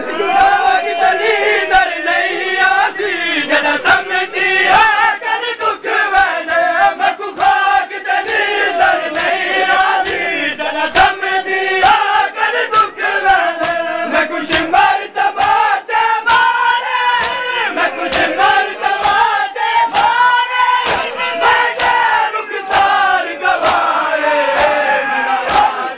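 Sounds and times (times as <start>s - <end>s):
men chanting together: 0.0s - 25.9s
hands slapping on chests: 5.6s - 25.9s.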